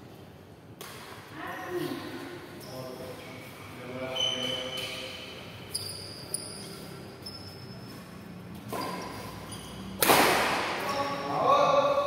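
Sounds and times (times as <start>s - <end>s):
racket hitting shuttlecock: 0.8s - 1.2s, 8.6s - 9.4s, 10.0s - 10.9s.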